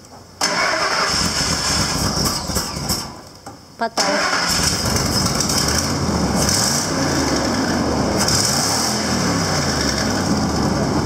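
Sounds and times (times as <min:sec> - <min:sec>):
pickup truck engine running: 0:04.5 - 0:11.0.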